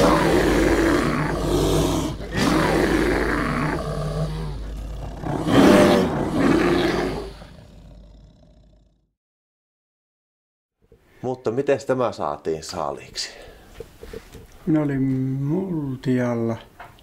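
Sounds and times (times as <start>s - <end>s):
bear roaring: 0.0s - 9.0s.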